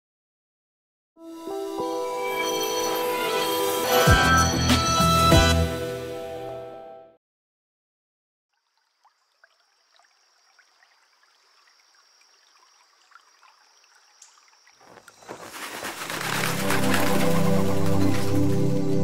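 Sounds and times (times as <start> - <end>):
music: 1.2 - 7.2, 16.1 - 19.0
faint trickling water: 8.5 - 15.2
small water drips: 8.5 - 15.2.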